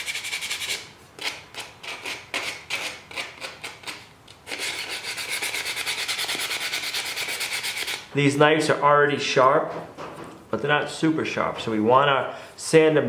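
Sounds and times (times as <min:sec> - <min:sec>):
sandpaper rasping on wood: 0:00.0 - 0:08.1.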